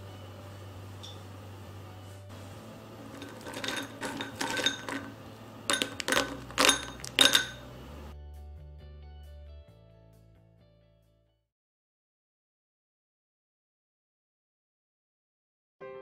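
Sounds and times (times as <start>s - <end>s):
soft background music: 0.0s - 11.2s
bread cubes clattering into bowl: 3.1s - 7.6s.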